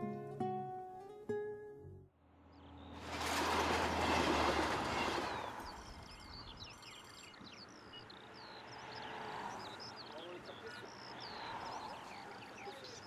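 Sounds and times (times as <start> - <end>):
train passing: 3.0 - 6.2
small birds chirping: 4.8 - 13.0.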